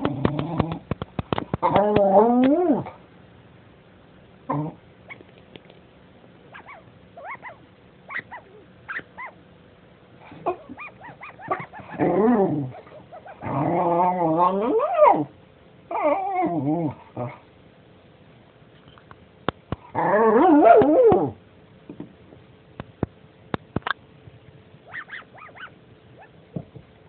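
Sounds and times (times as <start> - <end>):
dog whining growls: 0.0 - 0.9, 1.6 - 3.0, 4.5 - 4.8, 6.6 - 9.4, 10.3 - 17.4, 19.8 - 21.4
dog whimpering: 6.5 - 9.4, 10.5 - 15.3, 15.9 - 16.6.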